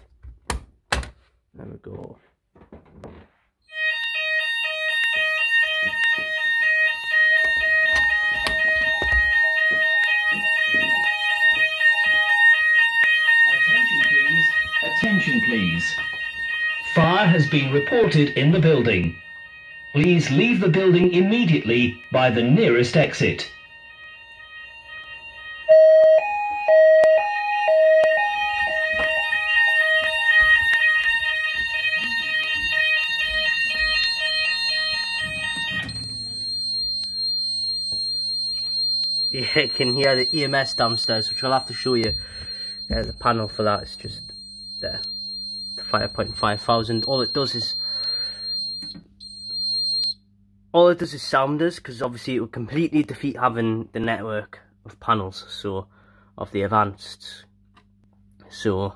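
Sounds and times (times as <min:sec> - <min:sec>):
fire alarm sounders: 0:03.7 - 0:50.2.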